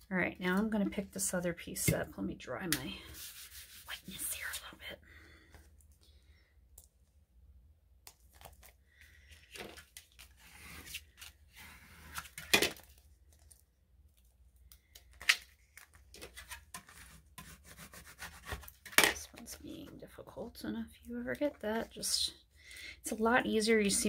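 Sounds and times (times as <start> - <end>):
papery rustling of vinyl sheet: 8.1 - 14.4, 15.0 - 19.6.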